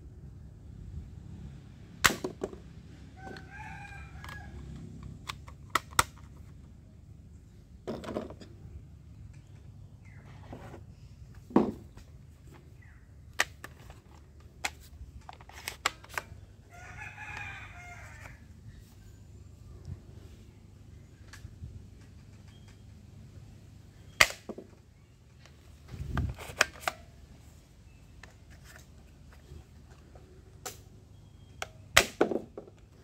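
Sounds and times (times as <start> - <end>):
rooster crowing: 3.2 - 4.8, 16.7 - 18.5.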